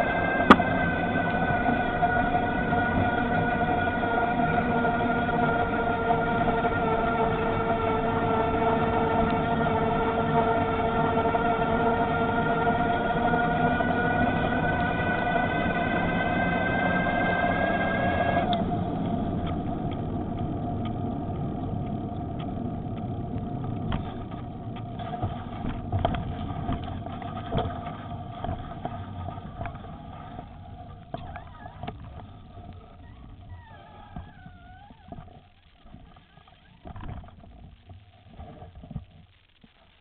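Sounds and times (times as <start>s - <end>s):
electric bicycle motor whining: 0.0s - 37.4s
tyre and wind rumble: 0.0s - 39.0s
faint clicks: 18.4s - 40.0s.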